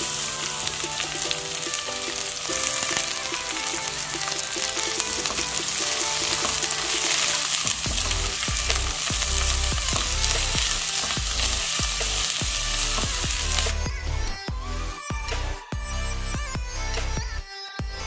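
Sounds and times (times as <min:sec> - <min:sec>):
spatula stirring: 0:00.0 - 0:13.7
vegetables sizzling in a pan: 0:00.0 - 0:13.8
faint background music with beat: 0:00.0 - 0:18.0.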